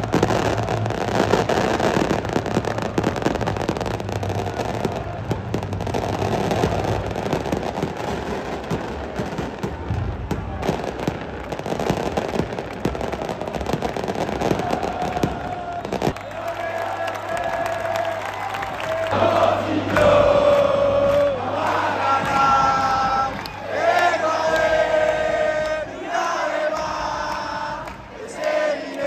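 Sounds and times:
firecrackers crackling: 0.0s - 19.2s
crowd noise: 0.0s - 29.0s.

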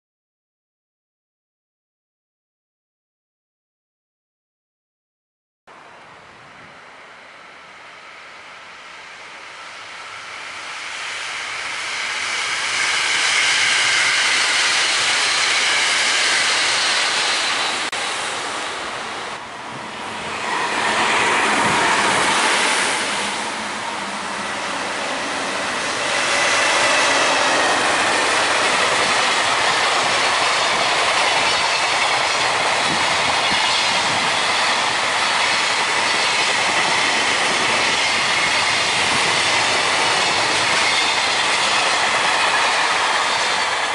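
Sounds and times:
electric train passing at speed: 5.7s - 43.9s
high wheel squeal: 11.2s - 18.4s, 20.2s - 43.9s
freight train wheels clattering: 20.4s - 43.9s.

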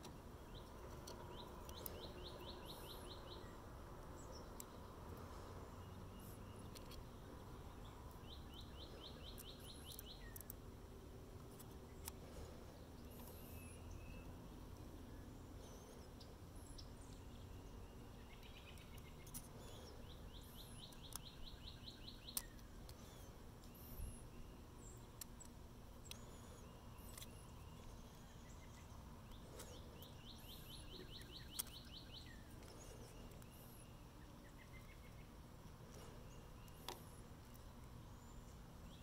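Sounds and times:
faint birdsong: 0.0s - 39.0s
songbird trill: 0.0s - 39.0s
small metal parts clicking: 9.3s - 10.6s.

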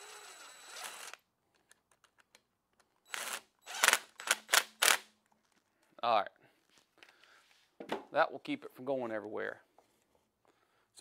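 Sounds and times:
impact driver whirring: 3.1s - 5.0s.

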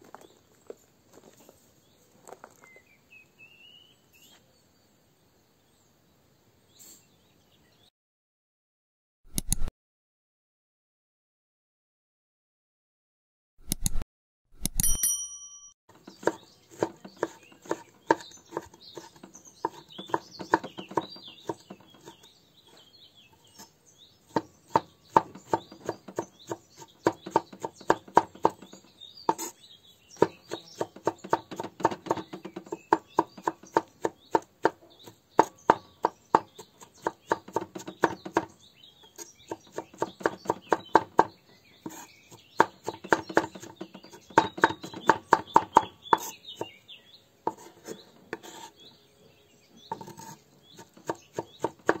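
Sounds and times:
birds chirping: 15.9s - 52.0s
knife chopping on wooden board: 16.0s - 22.8s, 24.3s - 29.6s, 30.2s - 46.8s, 47.5s - 48.7s, 49.9s - 52.0s.

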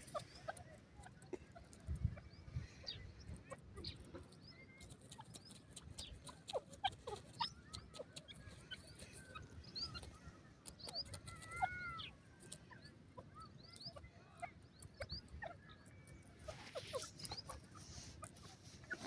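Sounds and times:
soft bird chirps and squeaks: 0.0s - 19.0s
small clicks: 9.1s - 11.6s.

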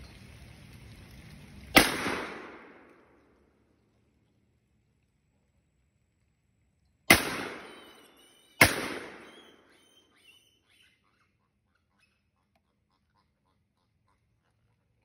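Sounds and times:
shotgun shots: 1.8s - 3.1s, 7.1s - 9.8s.

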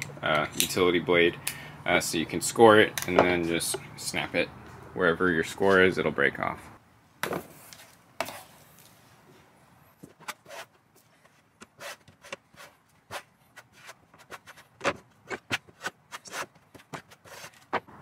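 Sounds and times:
trowel scraping adhesive: 11.6s - 17.8s.

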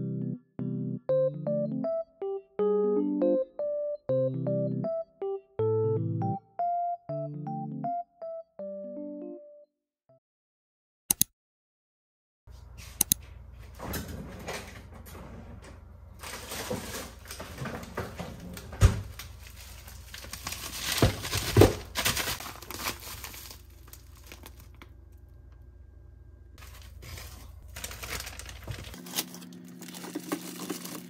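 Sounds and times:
clicks: 13.0s - 13.2s
plastic packaging crinkling: 16.2s - 25.1s, 26.6s - 31.0s.

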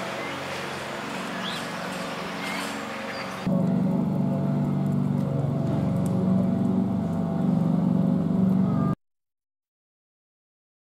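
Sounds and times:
low-pitched motor hum: 0.0s - 9.0s.

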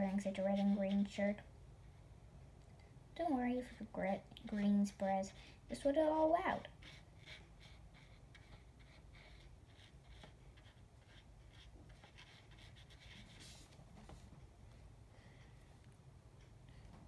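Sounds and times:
paintbrush scratching on paper: 0.0s - 1.4s, 4.9s - 14.5s.

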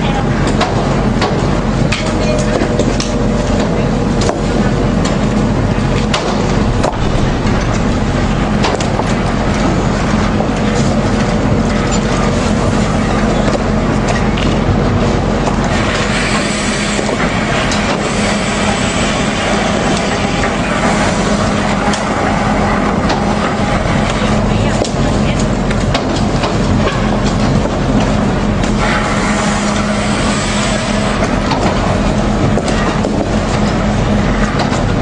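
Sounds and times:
machinery low hum: 0.0s - 35.0s
hiss: 15.8s - 21.4s, 28.8s - 31.2s.

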